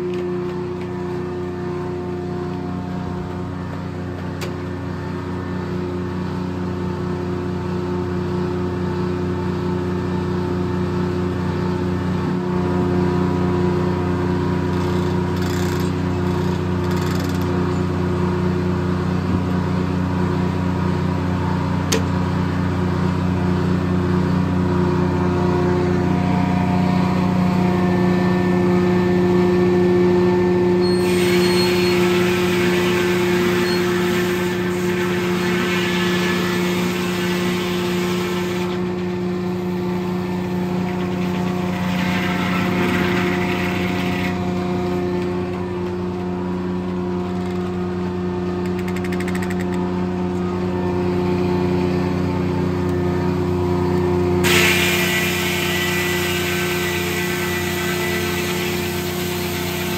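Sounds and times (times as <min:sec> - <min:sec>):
sawmill running: 0:00.0 - 0:59.9
saw blade cutting log: 0:54.4 - 0:59.9.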